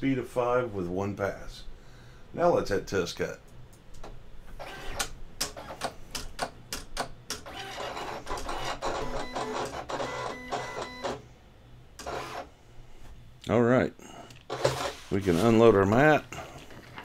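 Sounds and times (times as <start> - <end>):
cutting machine motors whirring: 7.4 - 11.2.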